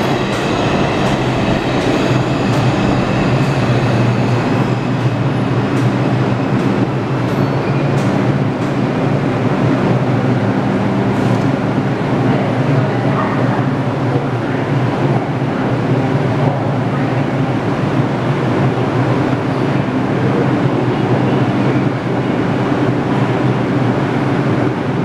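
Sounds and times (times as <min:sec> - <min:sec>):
low hum: 0:00.0 - 0:06.5
clicks of passing train cars: 0:00.0 - 0:09.0, 0:11.1 - 0:11.6
train wheels rumbling on rail: 0:00.0 - 0:25.0.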